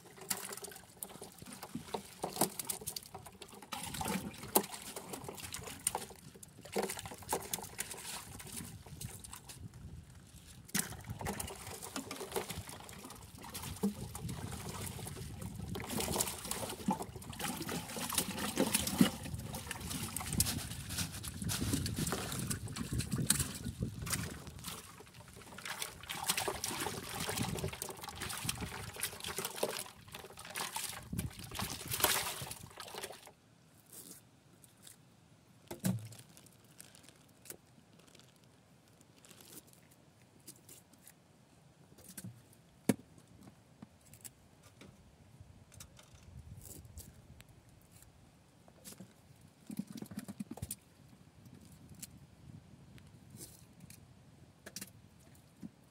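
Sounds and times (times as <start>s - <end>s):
water splashing in a bucket: 0.0s - 33.4s.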